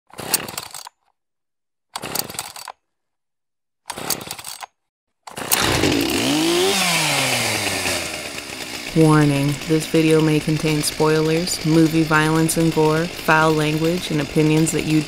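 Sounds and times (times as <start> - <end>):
chainsaw revving: 0.1 - 0.8, 2.0 - 2.7, 3.9 - 4.6, 5.3 - 15.0
chainsaw short bursts: 0.1 - 0.9, 2.0 - 2.7, 3.9 - 4.6, 5.3 - 15.0.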